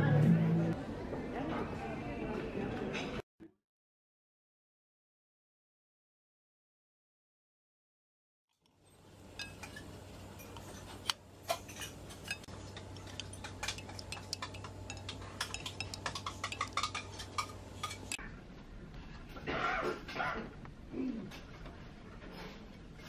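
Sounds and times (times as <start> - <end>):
plates and cutlery clinking: 8.9 - 18.2
steady low hum: 8.9 - 19.4.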